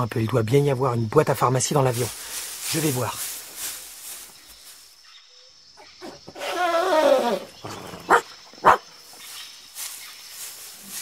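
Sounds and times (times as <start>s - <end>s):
animal whining: 6.0s - 8.8s.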